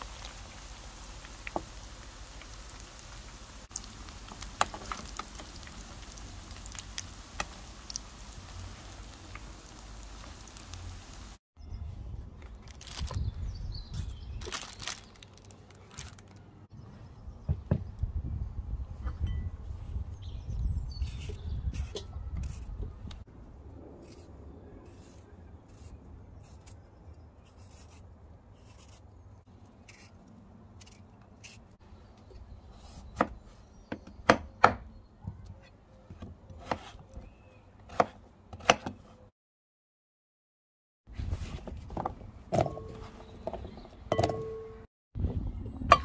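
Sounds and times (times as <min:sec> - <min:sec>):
knife slicing raw potato: 0:36.5 - 0:39.0.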